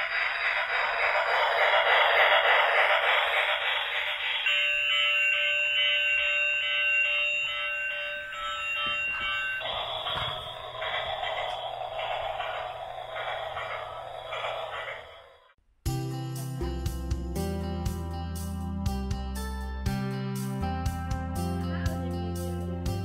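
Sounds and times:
tinny steam chugging sound: 0:00.0 - 0:15.6.

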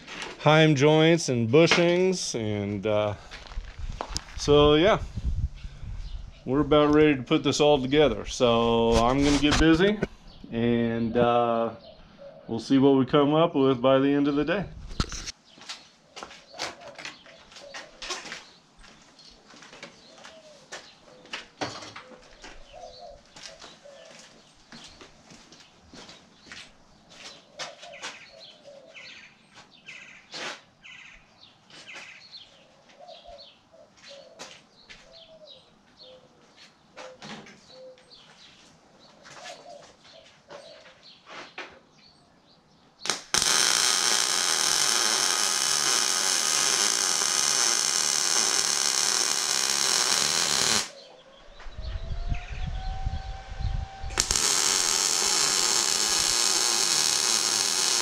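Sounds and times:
birds chirping: 0:04.2 - 0:13.3, 0:13.9 - 0:43.2, 0:50.9 - 0:54.3
arc welding crackling hiss: 0:43.1 - 0:51.0, 0:54.1 - 0:58.0.

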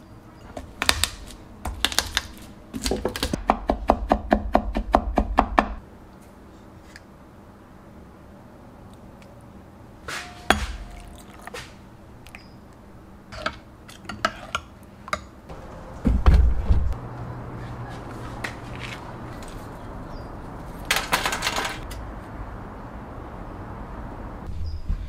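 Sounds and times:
heavy low thump: 0:16.0 - 0:17.0.

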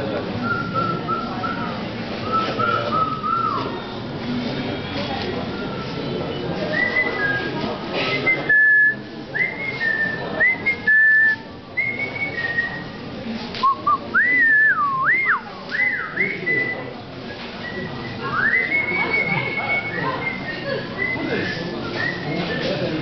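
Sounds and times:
person whistling bird-like notes: 0:13.6 - 0:22.8.

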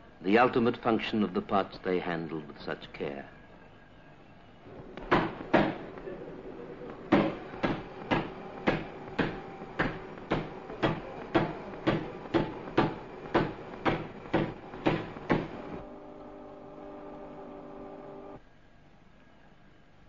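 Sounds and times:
sharp knocks: 0:04.9 - 0:06.1, 0:07.0 - 0:15.8.

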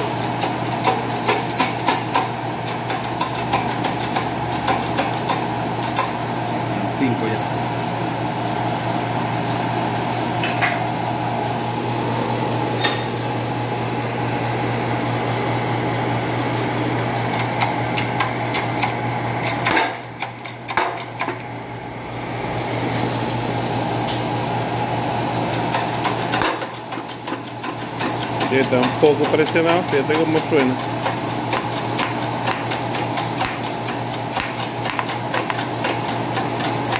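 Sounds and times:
press motor humming: 0:13.9 - 0:36.9.

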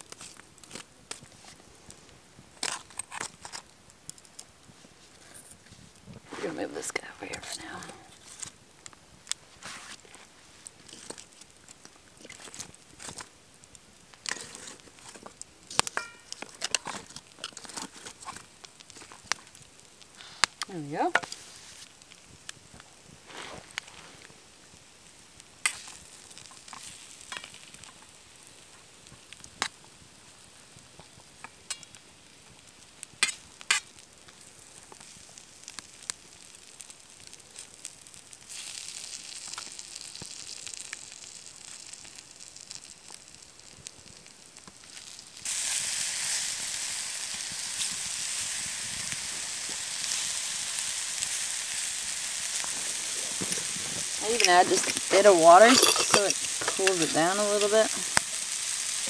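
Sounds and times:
food sizzling in pan: 0:00.0 - 0:59.0
metal spoon clinking on pan: 0:16.0 - 0:16.3, 0:55.6 - 0:57.1.

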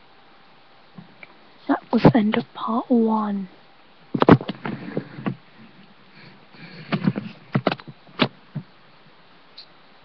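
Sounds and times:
camera handling knocks and rustles: 0:04.2 - 0:05.4, 0:06.8 - 0:08.7.

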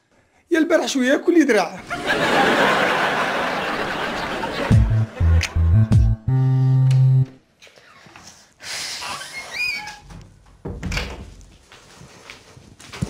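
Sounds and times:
wooden door squeaking open: 0:09.1 - 0:11.3.

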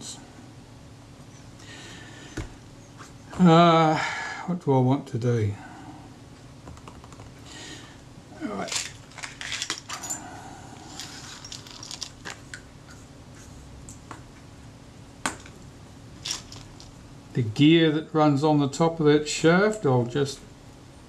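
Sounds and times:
small metal parts clinking: 0:08.5 - 0:12.6, 0:16.2 - 0:17.0.

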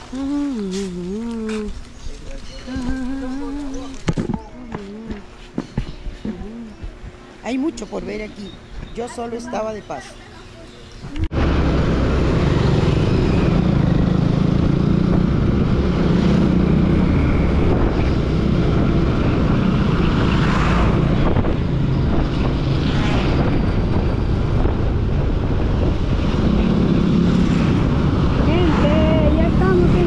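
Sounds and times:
wind rushing over microphone: 0:11.0 - 0:30.0.

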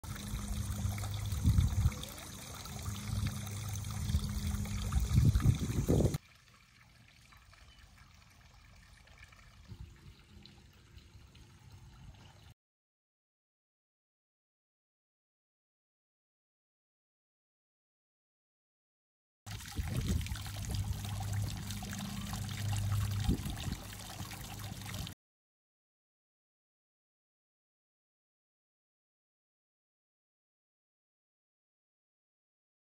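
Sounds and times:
steady low hum: 0:00.0 - 0:06.2, 0:19.7 - 0:25.1
fountain water trickling and splashing: 0:00.0 - 0:12.6, 0:19.5 - 0:25.2.

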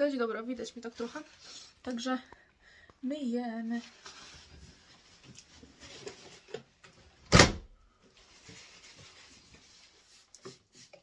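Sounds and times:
rustling and handling noise: 0:00.0 - 0:11.0.

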